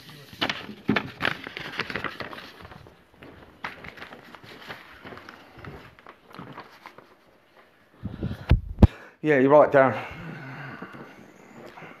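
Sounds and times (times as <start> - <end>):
footsteps: 0.5 - 8.2.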